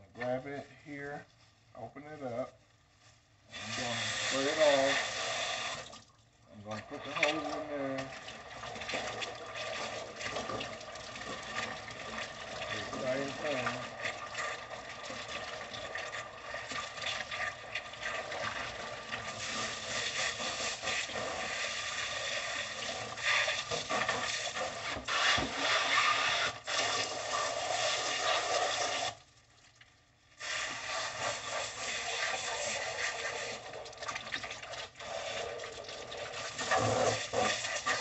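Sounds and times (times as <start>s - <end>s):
hose spraying water: 3.5s - 6.0s, 6.6s - 29.2s, 30.4s - 38.0s.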